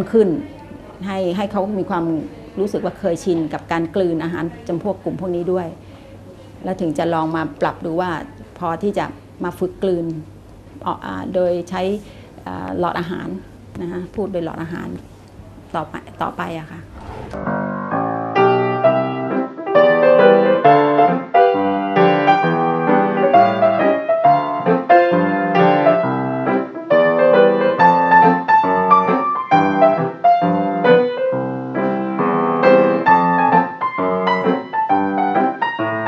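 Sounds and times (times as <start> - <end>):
piano music: 17.0 - 36.0.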